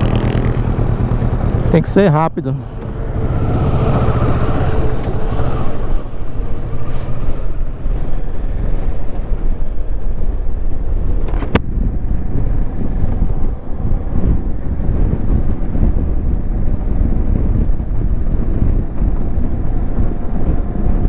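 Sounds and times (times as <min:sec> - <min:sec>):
motorcycle engine accelerating: 0:00.0 - 0:08.3
wind noise on microphone: 0:00.0 - 0:21.0.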